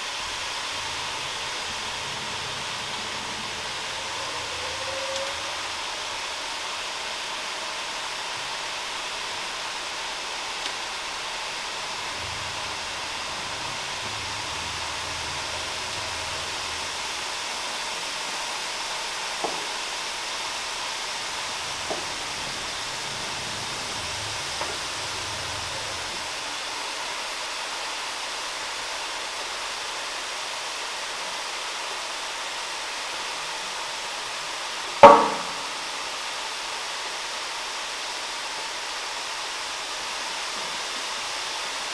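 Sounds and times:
machinery and air rushing: 0.0s - 27.0s
rug knocking onto machine bed: 35.0s - 35.8s.

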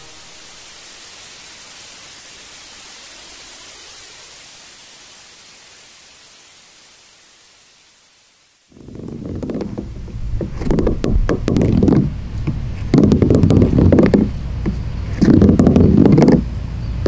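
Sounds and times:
heavy low rumbles: 8.8s - 17.0s.

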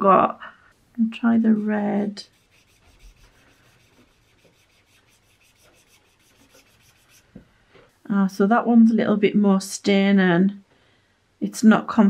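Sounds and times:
marker rubbing on paper: 1.2s - 7.4s.

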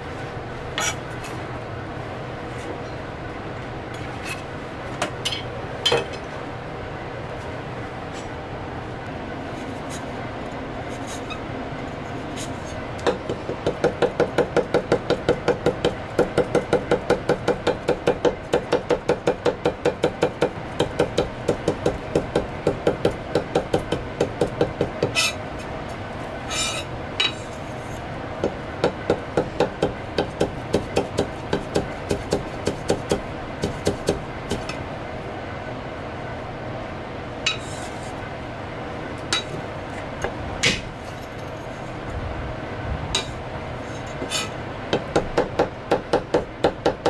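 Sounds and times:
cleaver scrape: 0.8s - 1.0s, 10.9s - 11.4s, 26.5s - 28.0s, 37.5s - 38.2s, 43.2s - 44.6s.

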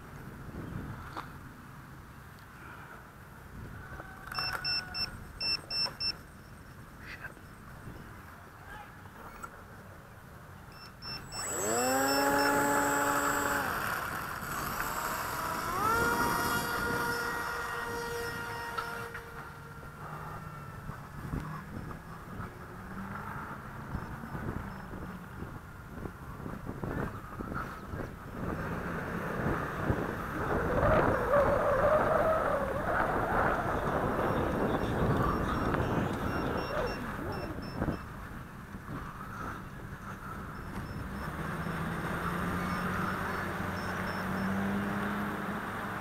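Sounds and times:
wind buffeting microphone: 0.0s - 1.4s, 11.4s - 43.8s
model plane propeller whine: 10.9s - 22.8s.

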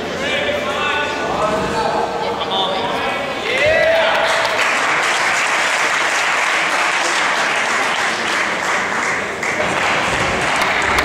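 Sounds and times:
audience clapping: 3.5s - 11.0s.

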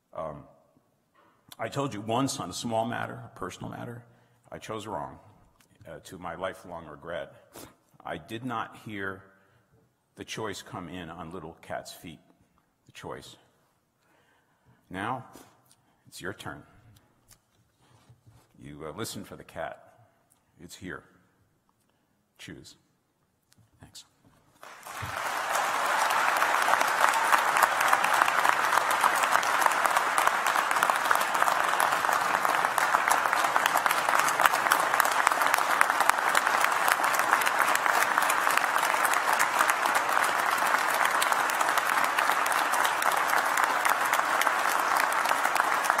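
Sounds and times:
large audience applauding: 24.6s - 46.0s.

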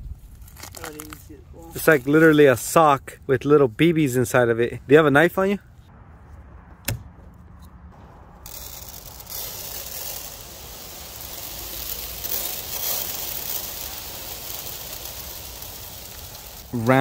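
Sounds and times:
metal pellets pattering: 8.4s - 17.0s.

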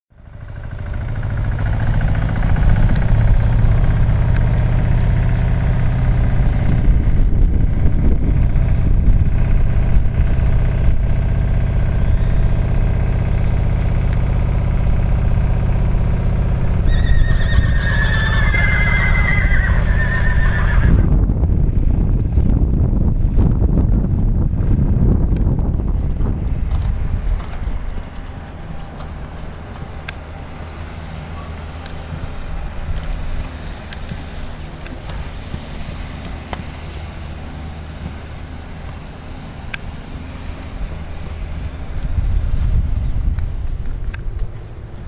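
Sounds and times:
steady low hum: 0.1s - 45.0s
horse whinnying: 16.8s - 21.1s.

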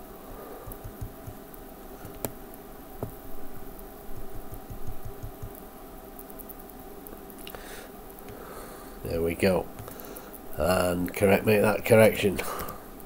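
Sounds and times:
steady room hum: 0.0s - 13.0s
computer mouse clicks: 0.7s - 1.4s, 4.2s - 5.6s
soft low thumps: 4.2s - 5.6s.

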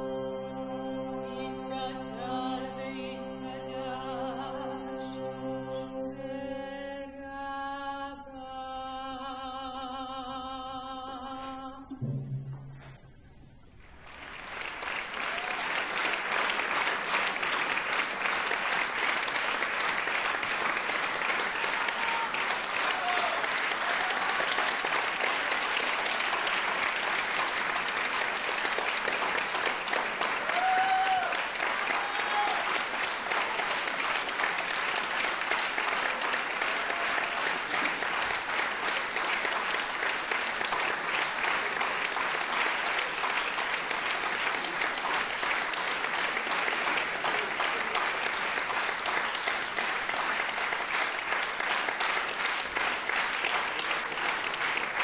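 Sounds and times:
audience applauding: 13.8s - 55.0s.

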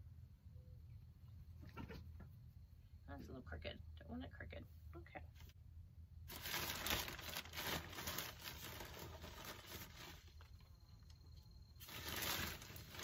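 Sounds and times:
plastic bag rustling: 6.2s - 13.0s.

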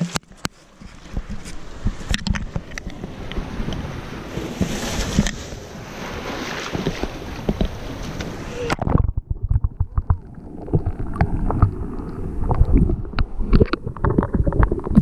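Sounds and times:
surf washing over rocks: 1.0s - 15.0s
water striking camera housing: 1.1s - 3.4s.

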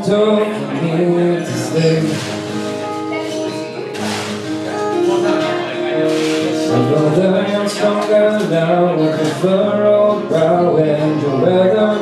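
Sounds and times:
man singing: 0.0s - 2.7s, 5.1s - 12.0s
acoustic guitar strumming: 0.0s - 12.0s.

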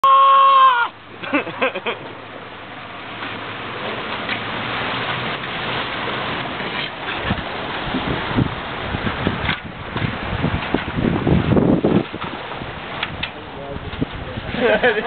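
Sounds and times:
man screaming: 0.0s - 1.0s
water rushing past hull: 0.0s - 15.0s
wind noise: 4.5s - 15.0s.

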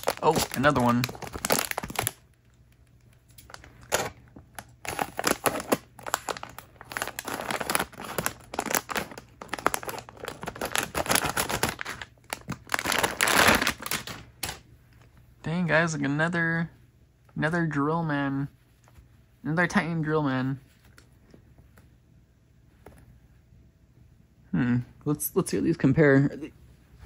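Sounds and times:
plastic bag crinkling: 0.0s - 2.3s, 3.4s - 14.7s.

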